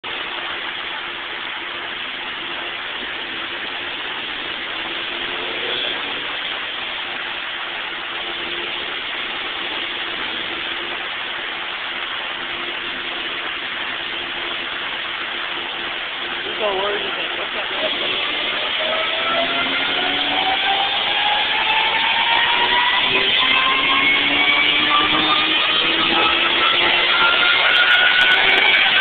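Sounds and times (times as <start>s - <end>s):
steady hiss: 0.0s - 19.0s
car engine idling: 0.0s - 29.0s.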